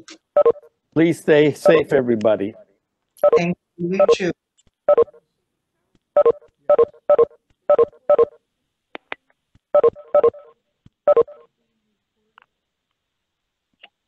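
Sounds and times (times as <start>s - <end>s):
short electronic beeps: 3.2s - 4.2s, 6.2s - 8.4s, 9.8s - 10.5s, 11.1s - 11.4s.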